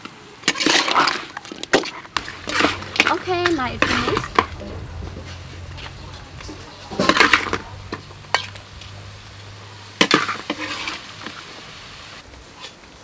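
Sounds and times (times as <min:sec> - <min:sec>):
metal ladle scraping a wok: 0:01.8 - 0:11.4.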